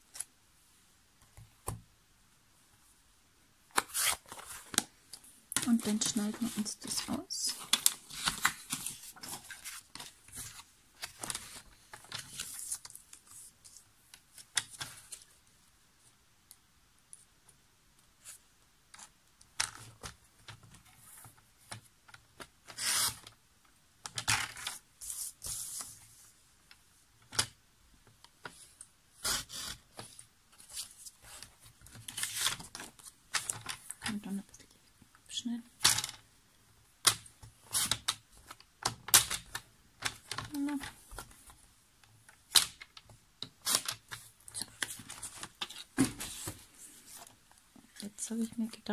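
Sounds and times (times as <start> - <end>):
paper rustling: 3.7 - 5.0, 5.6 - 15.3, 43.6 - 48.1.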